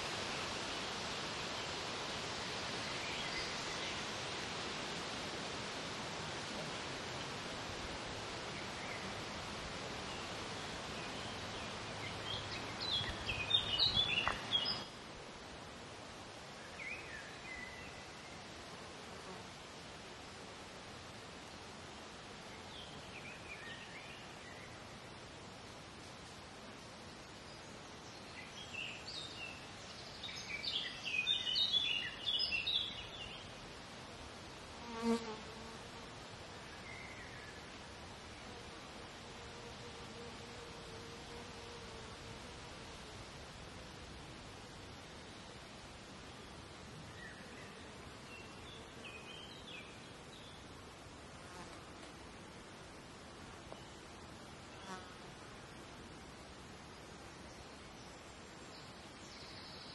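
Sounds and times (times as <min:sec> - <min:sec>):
steady background hiss: 0:00.0 - 0:59.9
fly buzzing past: 0:34.8 - 0:36.0, 0:51.4 - 0:52.2.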